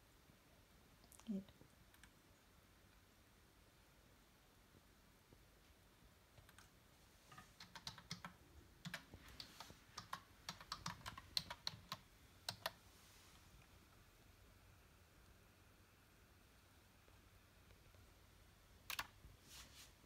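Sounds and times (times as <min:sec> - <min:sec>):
typing on a computer keyboard: 0:06.4 - 0:06.7, 0:07.3 - 0:12.8, 0:18.9 - 0:19.2.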